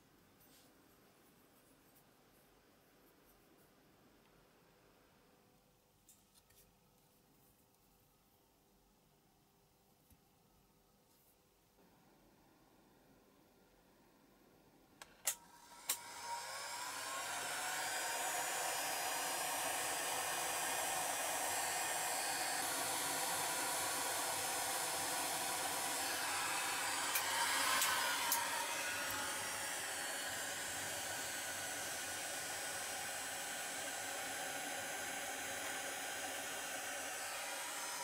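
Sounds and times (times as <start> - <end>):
heat gun fan blowing: 15.1 - 38.0.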